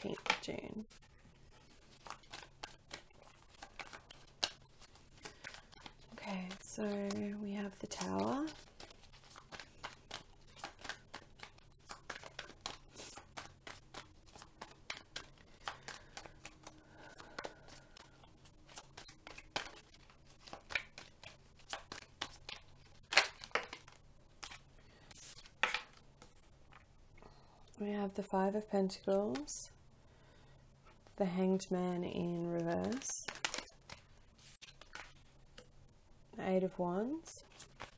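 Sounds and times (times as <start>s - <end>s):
cards shuffling: 0.0s - 26.8s, 29.0s - 29.5s, 32.2s - 35.7s, 37.4s - 37.9s
cards snapping on wooden table: 25.6s - 26.0s.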